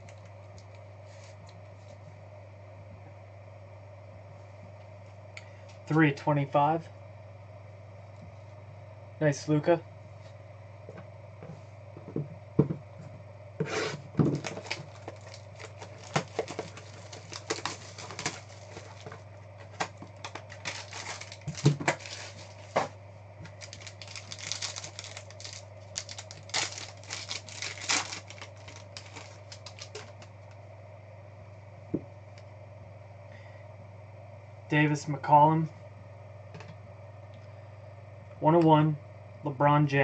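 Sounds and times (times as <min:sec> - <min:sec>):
steady low hum: 0:00.0 - 0:40.0
wrapper tearing: 0:14.4 - 0:22.9, 0:23.5 - 0:30.3.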